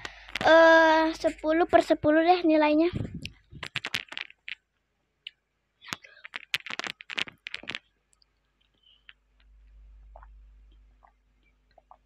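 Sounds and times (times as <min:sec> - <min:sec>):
wet mouth clicks and smacks: 0:05.9 - 0:08.3, 0:11.0 - 0:12.0.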